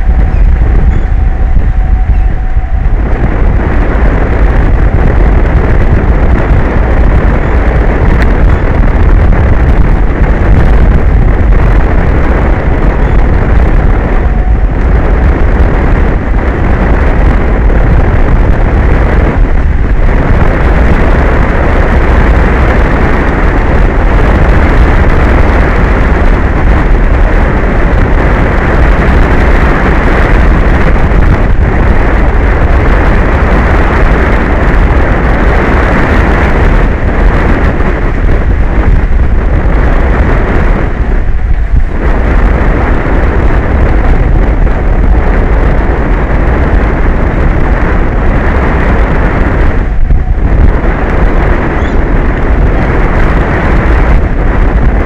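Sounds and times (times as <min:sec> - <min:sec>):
wind blowing on microphone: 0:00.0 - 0:55.0.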